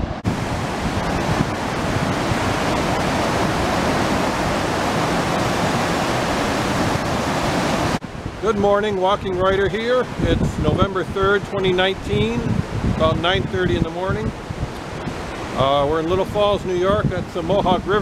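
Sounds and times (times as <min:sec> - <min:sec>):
river rushing through rapids: 0:00.0 - 0:08.4.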